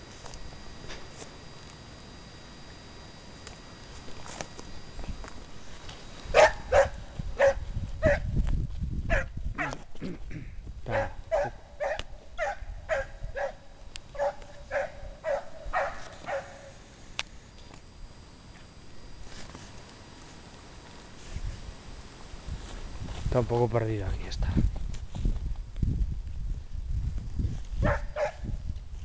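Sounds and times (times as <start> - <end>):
hound barking: 6.3 - 8.3, 9.1 - 9.8, 10.9 - 16.7, 27.8 - 28.4.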